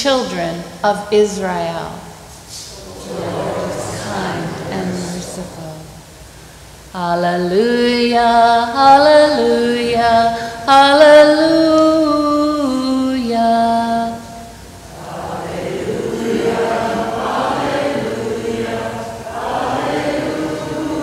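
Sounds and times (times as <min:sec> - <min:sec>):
congregation singing: 0:02.5 - 0:06.2, 0:07.5 - 0:21.0
woman singing alone: 0:07.0 - 0:14.4.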